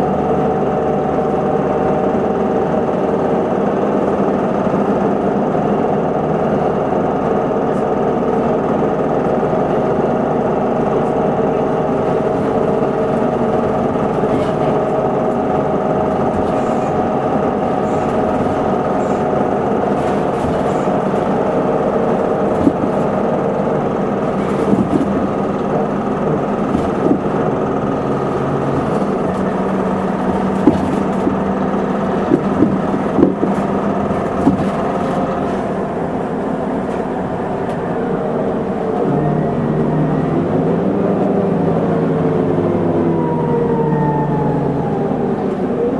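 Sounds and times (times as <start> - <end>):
bus diesel engine running: 0.0 - 45.9
knocks and rattles: 16.0 - 35.8.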